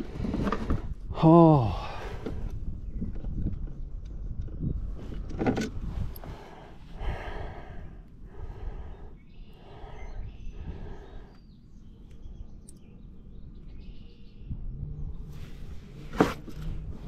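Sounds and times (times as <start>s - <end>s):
person breathing hard: 1.6s - 2.5s, 6.0s - 11.6s
low rumble: 1.8s - 17.0s.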